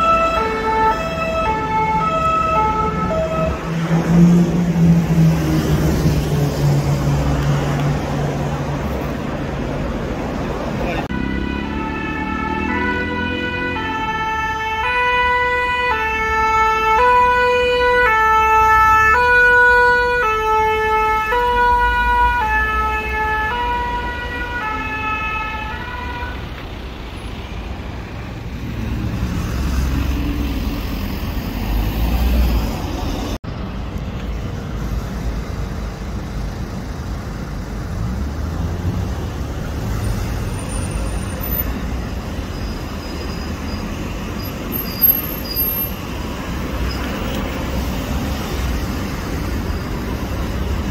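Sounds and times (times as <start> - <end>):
two-tone emergency siren: 0.0 - 5.3, 11.1 - 26.6
road traffic: 0.0 - 50.9.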